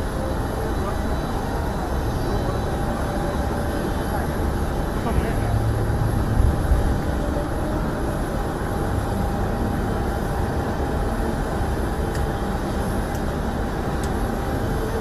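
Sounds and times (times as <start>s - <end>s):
distant aircraft engines rumbling: 0.0s - 15.0s.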